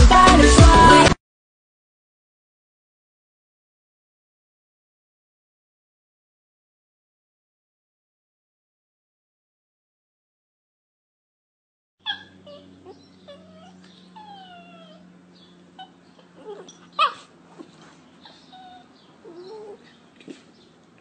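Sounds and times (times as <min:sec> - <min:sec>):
dog crying sharply: 0:12.0 - 0:15.1, 0:15.8 - 0:20.5
dog whimpering: 0:12.0 - 0:20.7.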